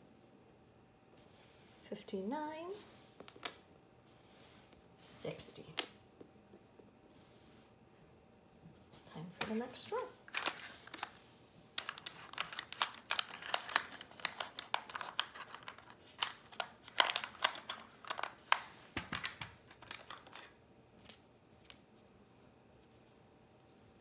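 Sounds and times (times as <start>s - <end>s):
plastic tiles clicking and clattering: 11.8s - 20.5s.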